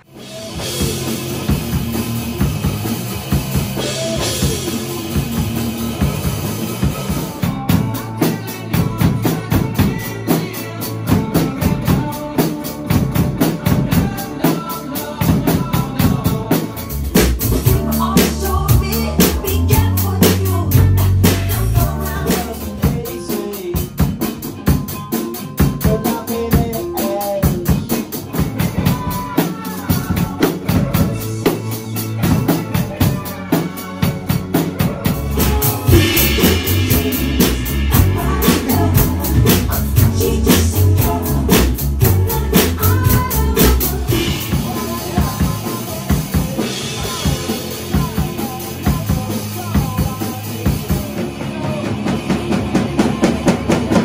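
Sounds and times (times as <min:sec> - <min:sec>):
backing song with bass line: 0:00.0 - 0:54.0
drum kit playing a beat: 0:00.0 - 0:54.0
fast cymbal strokes: 0:35.3 - 0:42.0.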